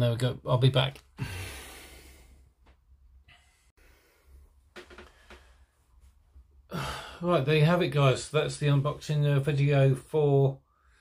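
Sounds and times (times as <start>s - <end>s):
faint breathing: 1.1s - 2.6s, 3.2s - 6.1s, 6.7s - 7.4s, 10.6s - 11.0s.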